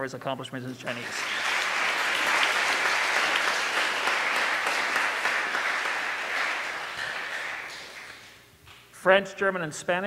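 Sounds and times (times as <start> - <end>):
audience applauding: 0.9 - 8.4.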